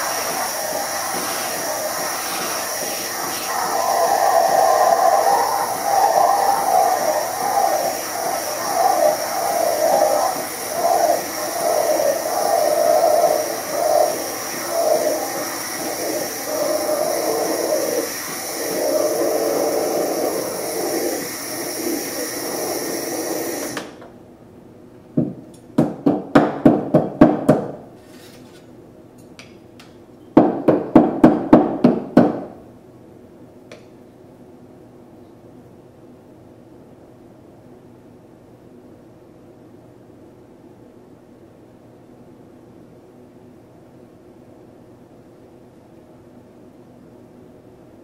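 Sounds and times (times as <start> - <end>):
steam wand frothing milk: 0.0 - 24.0.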